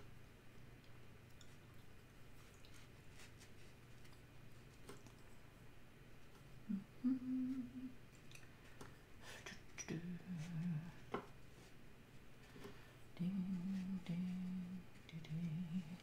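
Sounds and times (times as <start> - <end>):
person humming: 6.6 - 8.0, 9.3 - 11.2, 13.2 - 16.0.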